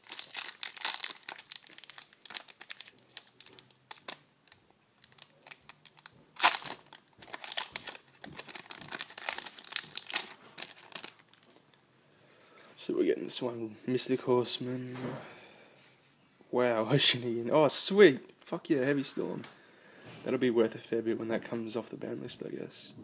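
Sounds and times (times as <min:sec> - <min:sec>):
foil wrapper crinkling and tearing: 0:00.0 - 0:11.6.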